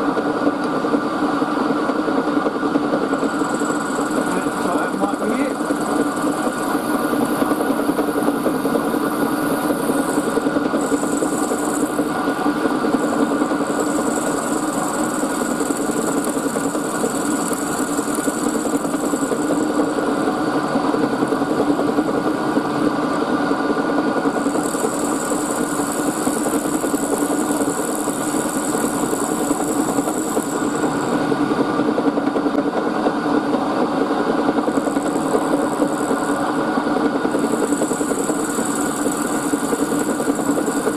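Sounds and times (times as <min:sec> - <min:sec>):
milling machine hum: 0:00.0 - 0:40.9
end mill cutting hiss: 0:03.1 - 0:22.5, 0:24.2 - 0:31.2, 0:34.7 - 0:40.9.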